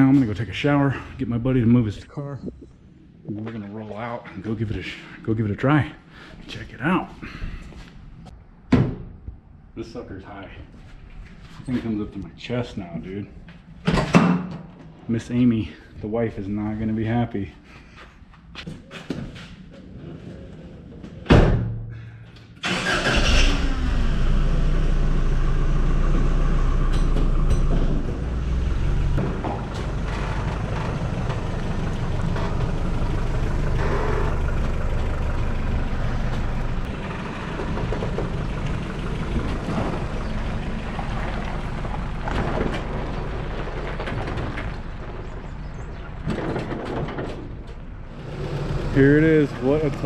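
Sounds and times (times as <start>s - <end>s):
pickup truck engine running: 25.3s - 45.9s.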